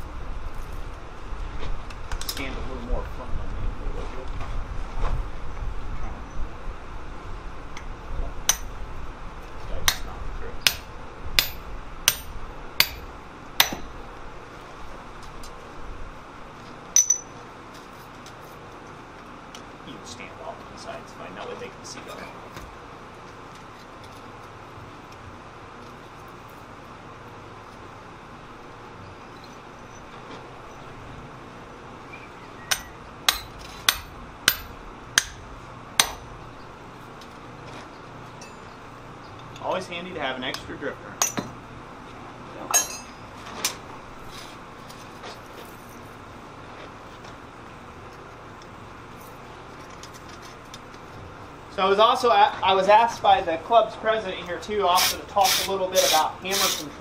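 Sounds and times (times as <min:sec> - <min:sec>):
sledgehammer ringing strikes on metal: 0:09.8 - 0:13.9, 0:17.0 - 0:17.4, 0:32.7 - 0:35.4, 0:42.7 - 0:43.2
metallic clink: 0:17.0 - 0:17.4, 0:38.4 - 0:38.8, 0:42.7 - 0:43.2.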